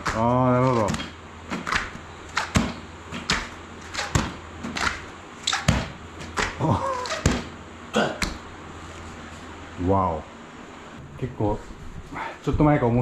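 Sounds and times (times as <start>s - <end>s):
palms slapping on mat: 0.0s - 7.6s, 8.2s - 8.5s
person grunting: 6.6s - 7.2s, 7.9s - 8.2s.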